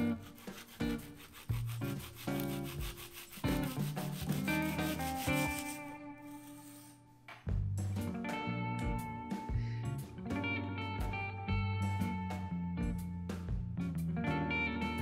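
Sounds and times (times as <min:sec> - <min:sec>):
knife sawing through toffee: 0:00.0 - 0:07.0
guitar music: 0:00.0 - 0:15.0.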